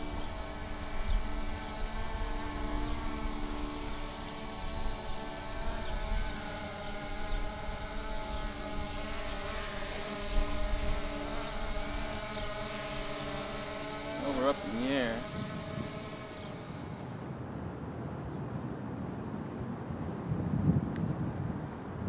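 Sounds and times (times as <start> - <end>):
drone propellers buzzing: 0.0 - 17.5.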